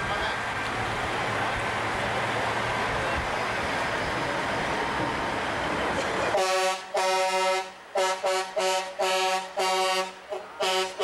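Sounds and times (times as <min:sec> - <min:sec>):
passing truck engine: 0:00.0 - 0:11.0
truck air horn blasts: 0:06.3 - 0:11.0.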